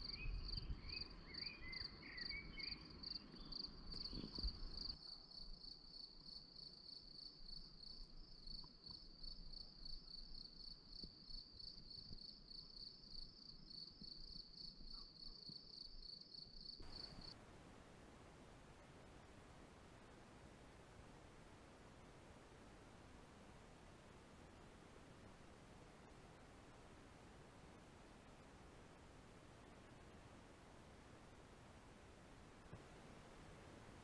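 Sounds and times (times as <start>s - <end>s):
cricket chirping: 0.0s - 17.4s.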